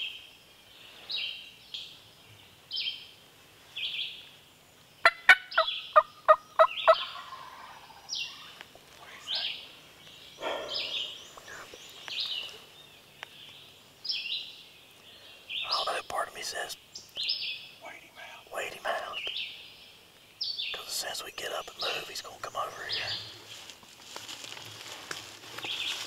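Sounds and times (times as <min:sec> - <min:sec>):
songbird calling: 0:00.0 - 0:23.5
turkey yelps: 0:05.0 - 0:08.5.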